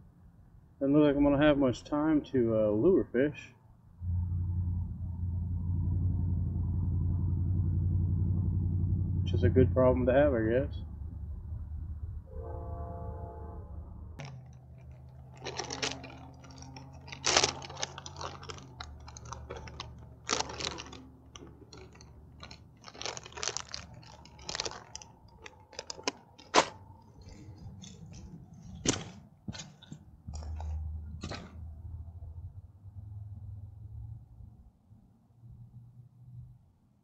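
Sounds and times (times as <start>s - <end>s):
close clicks and crunches: 14.2s - 31.6s.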